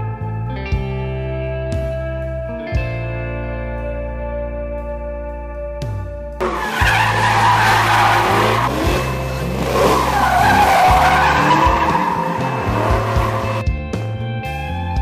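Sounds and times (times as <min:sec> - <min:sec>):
background music: 0:00.0 - 0:15.0
car engine running hard: 0:06.4 - 0:13.6
car tyres squealing: 0:06.4 - 0:13.6.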